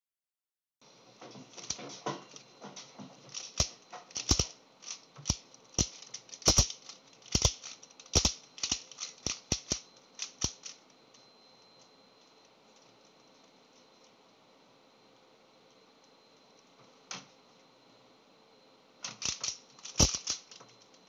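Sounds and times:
puzzle cube clicking: 0:03.3 - 0:10.7, 0:19.1 - 0:20.6.

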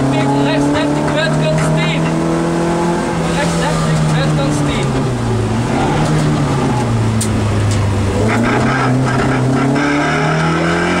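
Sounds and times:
car engine from inside cabin: 0:00.0 - 0:11.0.

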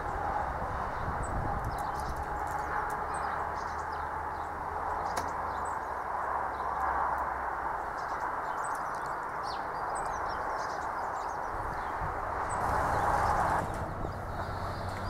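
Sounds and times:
birds chirping: 0:00.0 - 0:15.0
diesel engine chugging: 0:12.5 - 0:15.0.

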